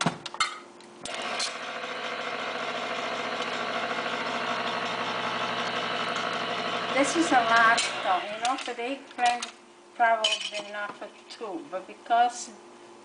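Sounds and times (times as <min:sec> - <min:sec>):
can opener motor running: 0:01.0 - 0:08.7.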